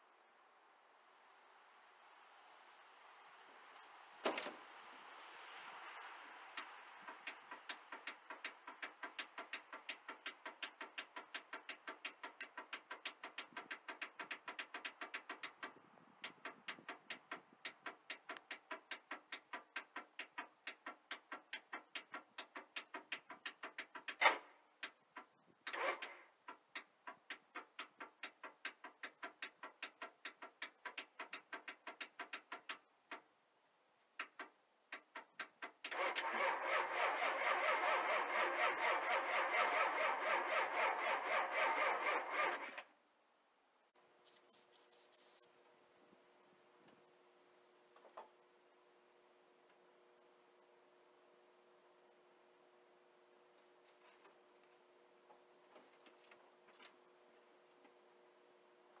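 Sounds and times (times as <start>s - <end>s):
diesel engine cranking: 6.3s - 33.2s, 34.2s - 42.9s
engine knocks: 7.0s - 24.3s.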